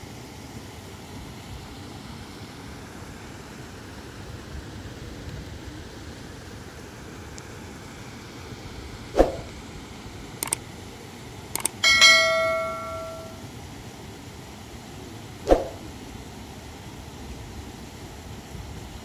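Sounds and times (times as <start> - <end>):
steady hiss: 0.0 - 19.0
sharp clicks: 10.4 - 10.6, 11.6 - 13.4
ringing bell-like strike: 11.8 - 13.5.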